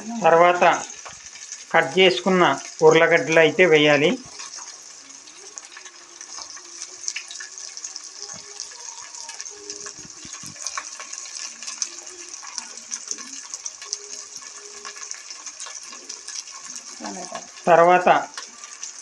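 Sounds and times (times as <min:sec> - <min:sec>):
vegetables sizzling in hot oil: 0:00.0 - 0:19.0.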